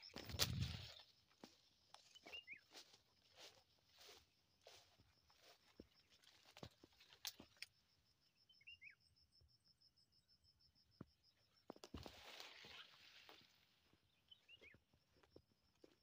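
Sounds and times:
footsteps through undergrowth: 0.0s - 7.7s, 11.8s - 14.8s
bird chirping: 2.0s - 2.8s, 8.3s - 9.2s, 14.1s - 14.8s.

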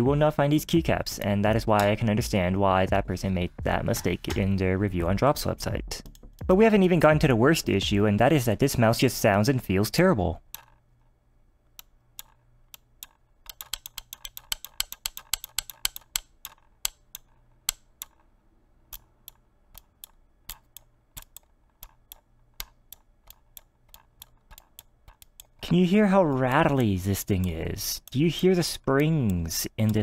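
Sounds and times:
rattly mouse button clicks: 11.8s - 18.2s.

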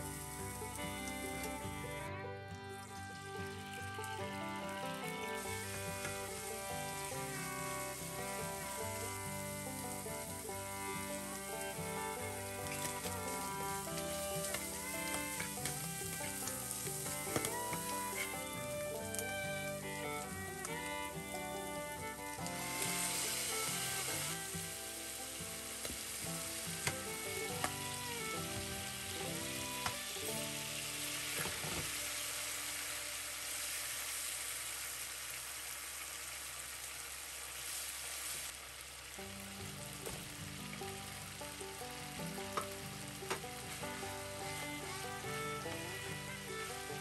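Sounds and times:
food sizzling in a frying pan: 0.0s - 0.9s, 5.0s - 19.8s, 22.1s - 45.4s
chopsticks tapping a pan: 12.6s - 19.4s, 26.8s - 29.0s.

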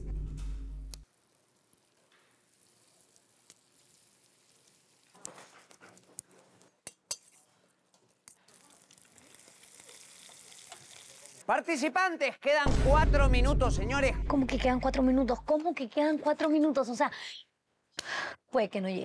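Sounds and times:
food sizzling in hot oil: 1.0s - 5.8s, 8.2s - 11.5s
metal utensils clinking on pans: 6.8s - 7.5s.

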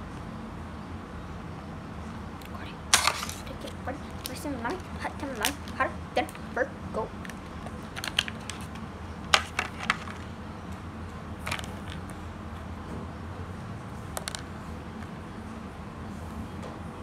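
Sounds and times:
plastic packaging crackling: 2.9s - 5.8s, 7.2s - 8.8s.

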